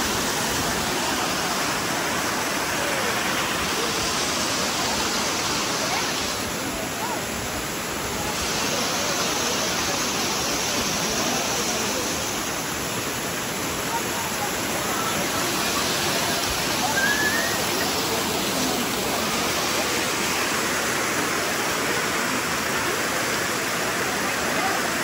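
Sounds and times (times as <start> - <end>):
waterfall pouring onto rocks: 0.0 - 25.0.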